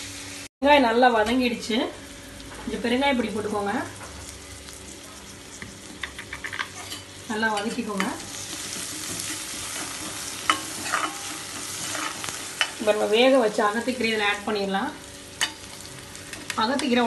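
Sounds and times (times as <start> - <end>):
food sizzling in oil: 0.0 - 0.5, 1.4 - 17.0
ladle scraping and clicking on pan: 8.5 - 12.8.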